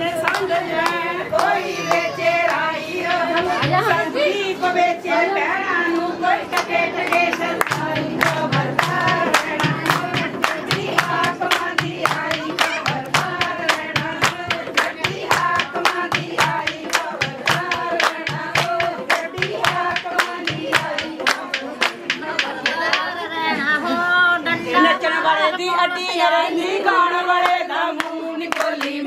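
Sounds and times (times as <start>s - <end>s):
voices singing together: 0.0s - 29.0s
sharp claps: 0.2s - 3.5s, 6.5s - 23.1s.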